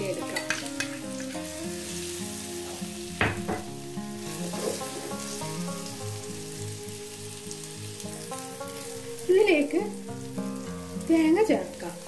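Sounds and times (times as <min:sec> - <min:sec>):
banana sizzling in ghee: 0:00.0 - 0:12.0
spoon stirring in pan: 0:04.2 - 0:06.0.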